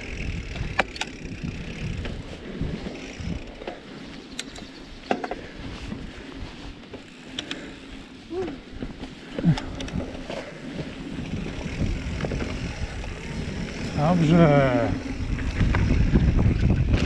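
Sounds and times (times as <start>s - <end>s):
bike chain and frame rattling: 0.0s - 17.0s
bike tyres rumbling on dirt: 0.0s - 17.0s.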